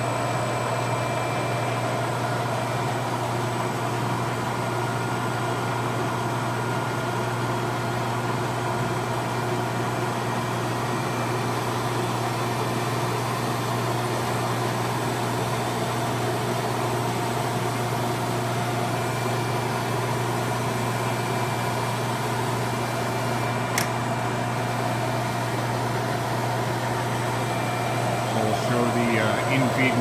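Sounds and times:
grinder humming: 22.9s - 30.0s
sharp click: 23.7s - 24.0s.

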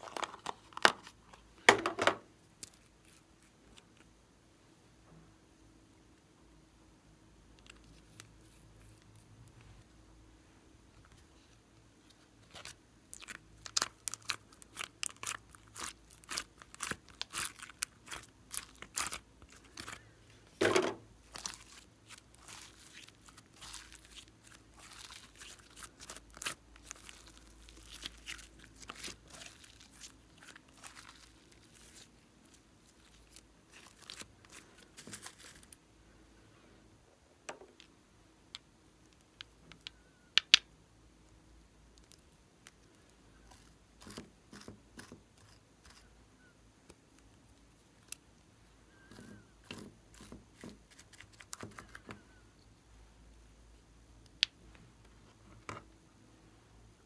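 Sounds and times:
slime squelch: 12.4s - 20.2s, 21.2s - 35.7s.

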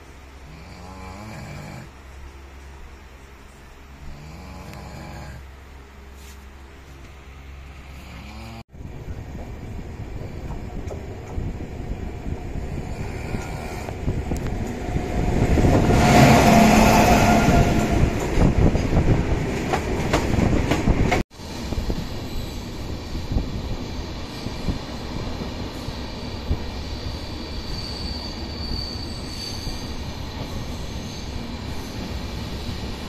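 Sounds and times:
train wheels rumbling on rails: 8.8s - 33.0s.

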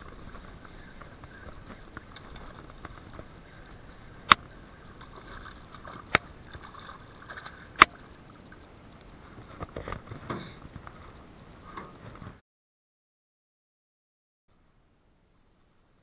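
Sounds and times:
water splashing: 0.0s - 12.2s.

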